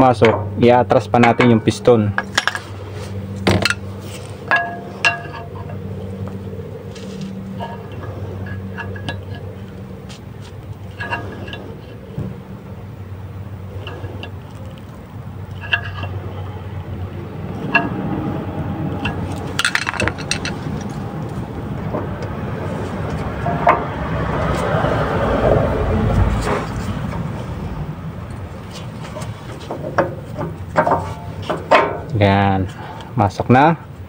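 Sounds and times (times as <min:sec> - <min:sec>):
steady low hum: 0:00.0 - 0:34.0
screwdriver clinking and scraping metal: 0:19.0 - 0:21.0.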